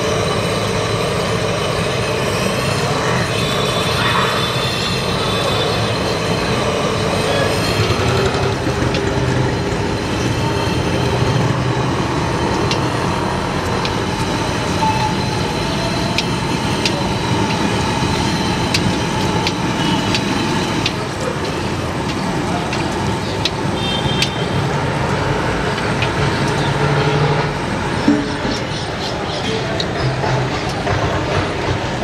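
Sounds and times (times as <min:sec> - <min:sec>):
dense street noise: 0:00.0 - 0:32.0
sharp ticks: 0:12.4 - 0:24.4.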